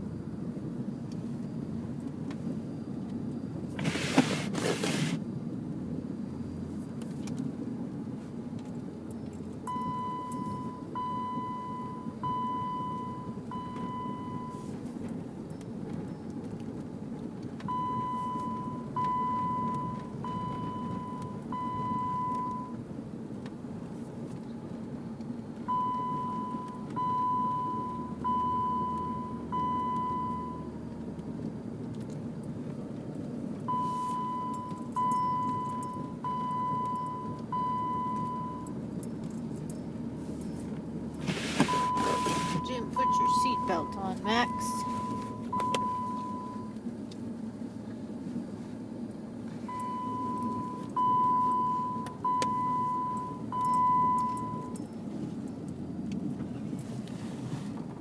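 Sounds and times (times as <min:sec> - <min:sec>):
engine humming: 0:00.0 - 0:58.0
dashboard warning chime beeps: 0:09.6 - 0:14.8, 0:17.7 - 0:22.8, 0:25.6 - 0:30.7, 0:33.7 - 0:38.8, 0:40.4 - 0:46.8, 0:49.7 - 0:54.9.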